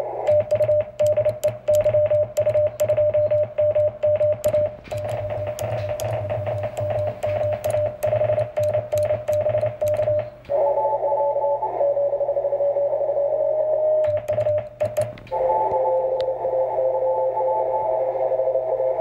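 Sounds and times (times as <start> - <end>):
morse code tone with clicks: 0.3 - 10.5, 14.0 - 16.4
jumble of morse tones: 0.3 - 19.0.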